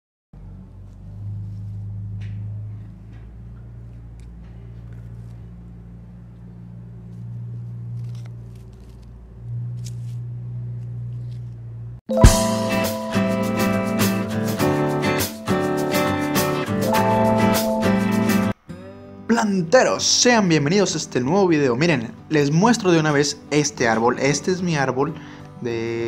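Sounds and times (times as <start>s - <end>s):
acoustic guitar music: 12.1s - 26.0s.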